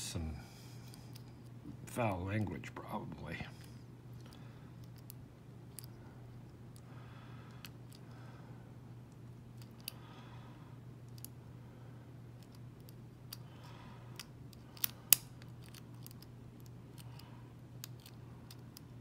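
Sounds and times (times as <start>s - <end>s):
lock pick clicking in padlock: 14.2s - 17.2s.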